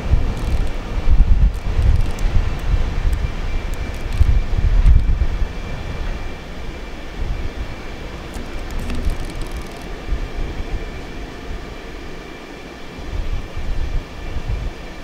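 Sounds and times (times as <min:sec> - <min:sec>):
faint steady whine: 0:00.0 - 0:15.0
subway train rumbling: 0:00.0 - 0:15.0
faint high ticks: 0:00.3 - 0:00.8, 0:01.4 - 0:05.1, 0:08.3 - 0:10.0.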